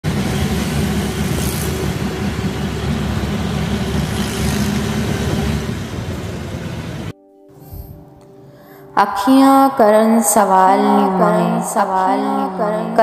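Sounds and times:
auto-rickshaw engine: 0.0 - 7.1
road noise: 0.0 - 7.1.

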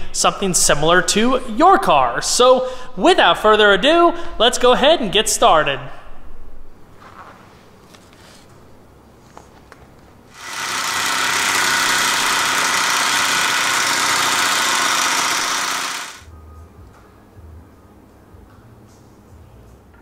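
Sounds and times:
impact wrench hammering: 10.4 - 16.2.

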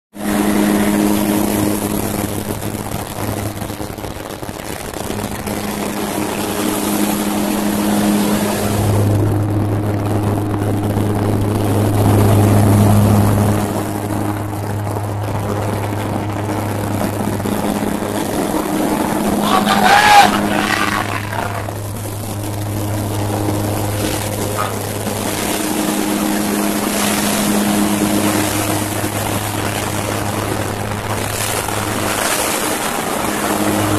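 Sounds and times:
propeller aircraft engines droning: 0.2 - 33.9.

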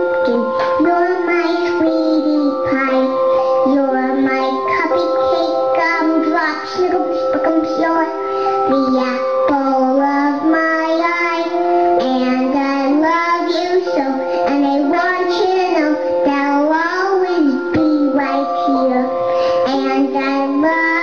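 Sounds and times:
boy singing: 0.0 - 21.0
sustained backing tones: 0.0 - 21.0.

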